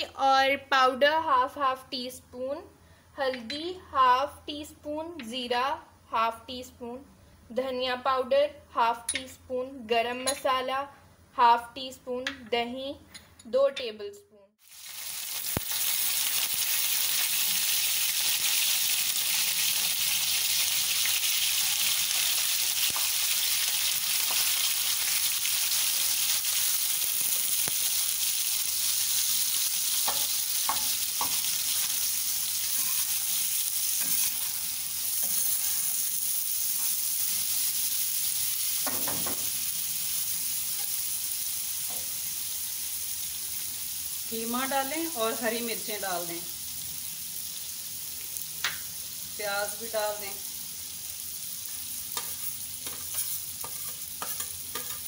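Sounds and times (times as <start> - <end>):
meat sizzling on a griddle: 14.6 - 55.0
spatula tapping and scraping griddle: 30.0 - 32.0, 32.6 - 36.0, 38.8 - 39.6, 52.1 - 55.0.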